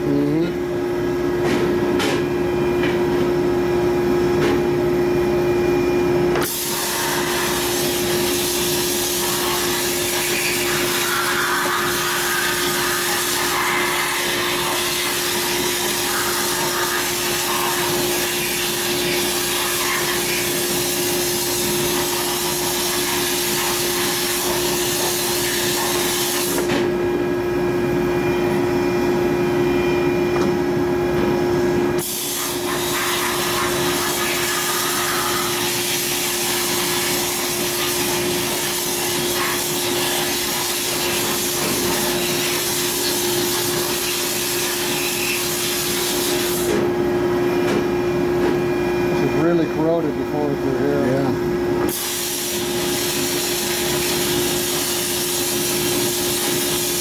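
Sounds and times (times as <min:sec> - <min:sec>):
steady hum: 0:26.6 - 0:51.9.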